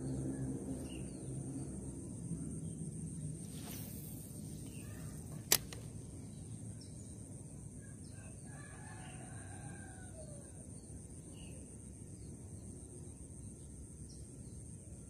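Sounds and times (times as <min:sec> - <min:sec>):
high hiss: 0:03.2 - 0:05.8
faint rooster crowing: 0:07.8 - 0:10.8.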